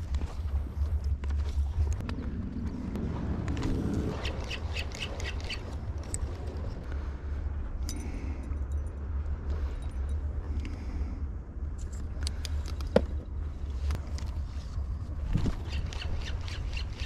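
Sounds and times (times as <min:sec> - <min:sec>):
wind rumbling on microphone: 0:00.0 - 0:17.0
fishing tackle clicks and scrapes: 0:11.8 - 0:17.0.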